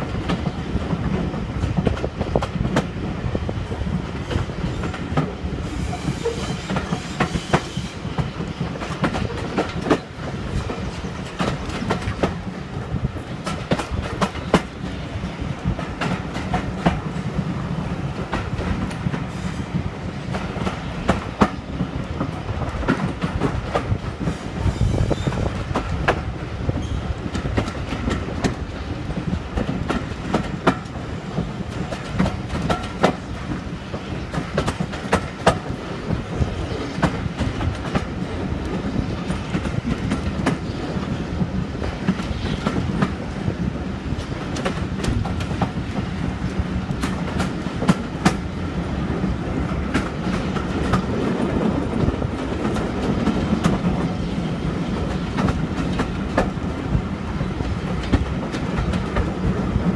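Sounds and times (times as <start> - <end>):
train coach rumble: 0.0 - 59.9
wheels clicking over rail joints: 25.1 - 43.4.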